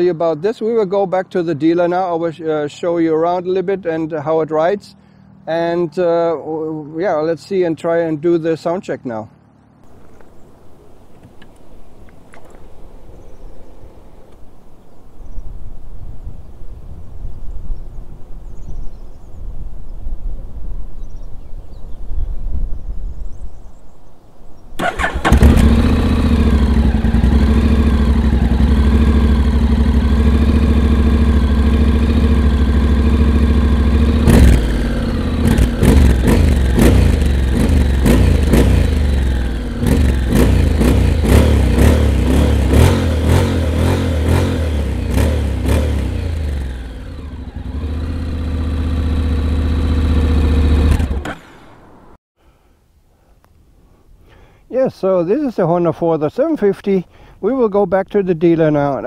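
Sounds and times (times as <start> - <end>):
scooter engine idling and revving: 24.8 - 52.2.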